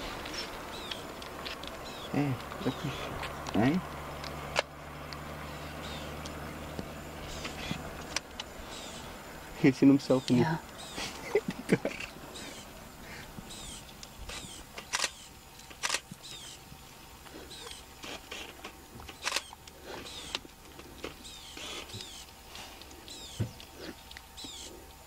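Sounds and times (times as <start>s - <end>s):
sharp clicks: 4.2s - 5.2s, 13.6s - 16.6s, 17.6s - 24.7s.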